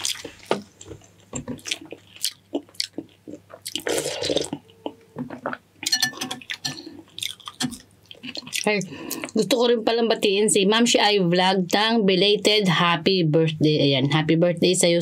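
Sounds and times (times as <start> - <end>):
wet chewing and lip smacks: 0.0 - 5.5, 6.4 - 9.4.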